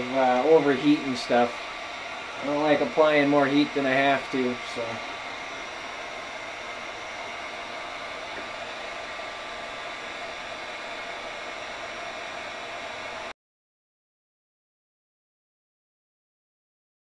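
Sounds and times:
heat gun fan blowing: 0.0s - 13.3s.

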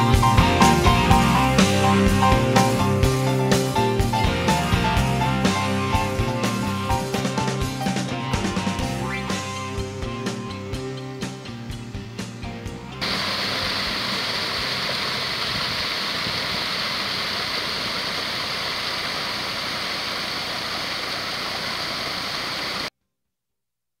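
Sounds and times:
waterfall rushing: 13.0s - 22.9s.

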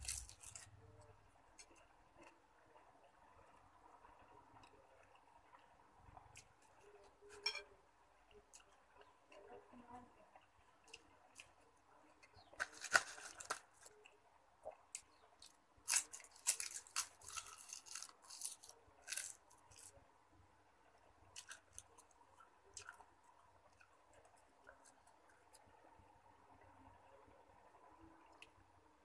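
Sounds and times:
person chewing crunchy vegetables: 0.0s - 0.8s, 14.6s - 20.0s, 21.3s - 25.7s.

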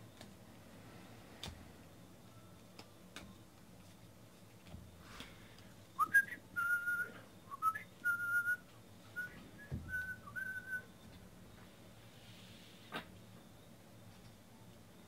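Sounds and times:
person whistling a tune: 6.0s - 11.0s.

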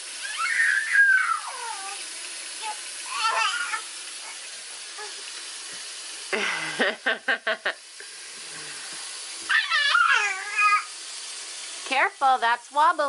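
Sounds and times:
person laughing: 6.3s - 7.8s.

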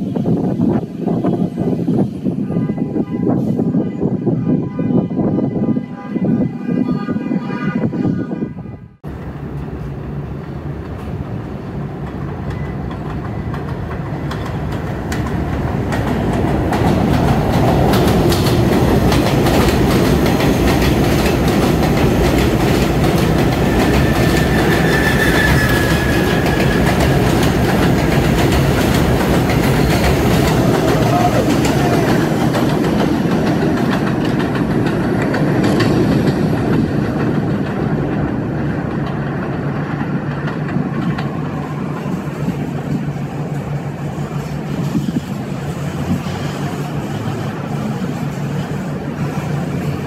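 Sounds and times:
subway train wheels clattering: 0.0s - 6.7s, 9.0s - 50.0s
faint wheel squeal: 23.8s - 26.8s.

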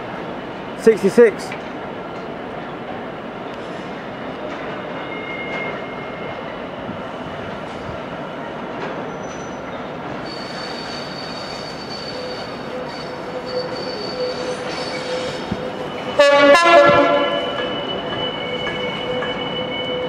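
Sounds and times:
train wheels squealing: 3.6s - 6.8s, 8.9s - 16.2s, 16.8s - 20.0s
locomotive horn: 16.2s - 17.8s.

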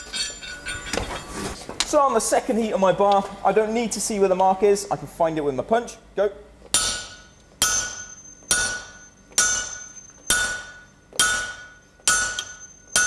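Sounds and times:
sledgehammer striking metal punch: 6.8s - 13.0s.

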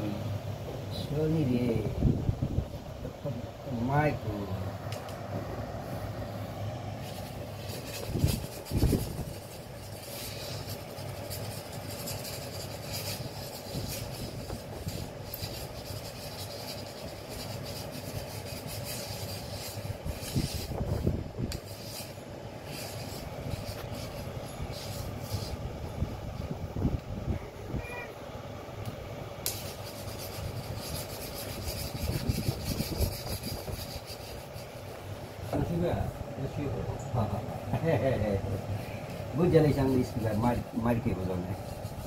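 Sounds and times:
steady background hum: 0.0s - 42.0s
stick scraping on concrete floor: 7.0s - 25.6s, 29.4s - 35.7s.

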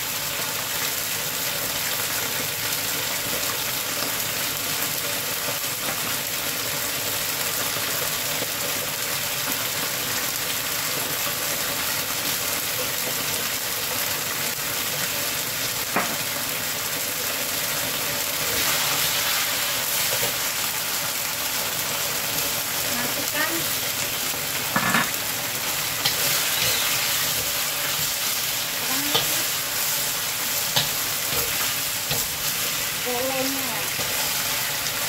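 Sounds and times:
sauce sizzling in a wok: 0.0s - 35.0s
spatula stirring: 25.8s - 33.0s.

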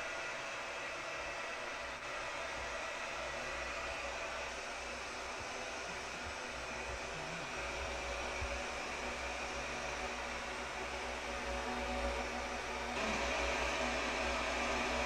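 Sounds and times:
television static hiss: 0.0s - 15.0s.

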